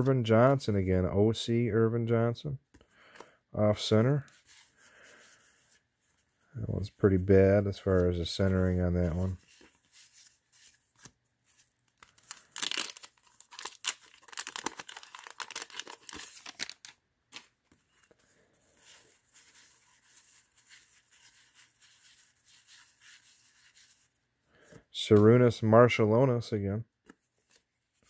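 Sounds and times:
cards rustling: 2.8 - 24.1
wax paper wrapper tearing and crinkling: 11.9 - 17.5.

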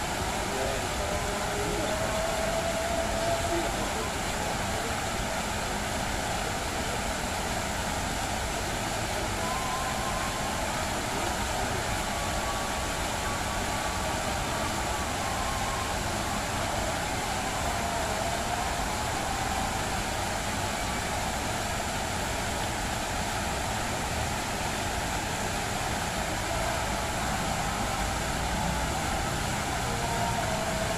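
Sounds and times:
fountain water splashing into pool: 0.0 - 30.9.

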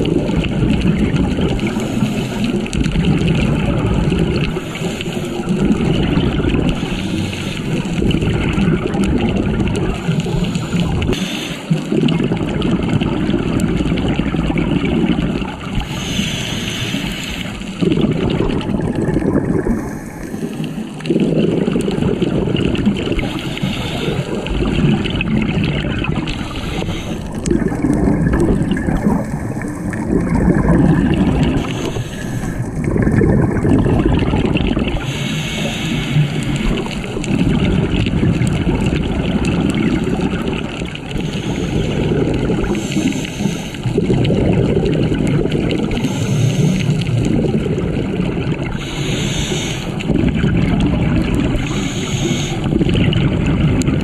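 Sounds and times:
diver exhaling bubbles underwater: 0.0 - 54.0.

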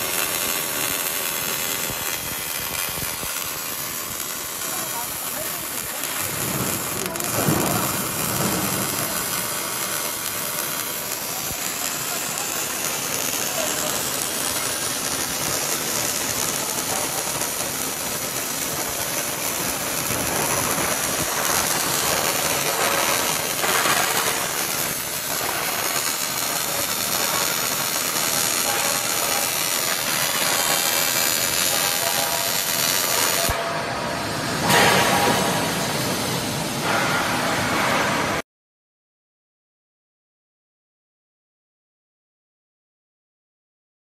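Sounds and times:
welding arc hissing and crackling: 0.0 - 33.6, 34.2 - 38.4.

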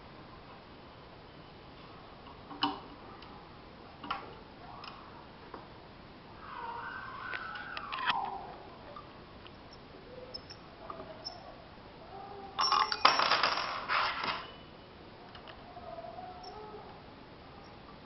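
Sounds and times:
metal key rattling on metal frame: 12.6 - 13.8.

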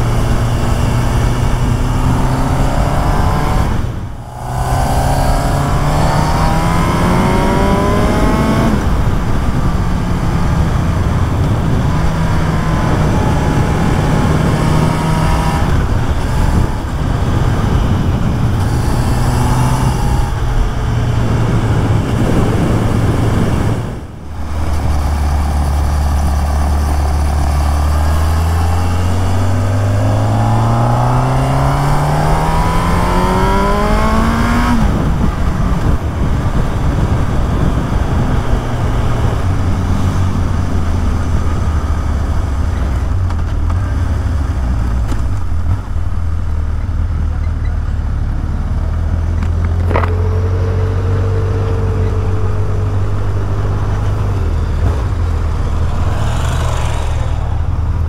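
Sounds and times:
motorcycle engine accelerating: 0.0 - 58.0
wind noise on microphone: 0.0 - 58.0
short higher tone: 4.0 - 7.6.

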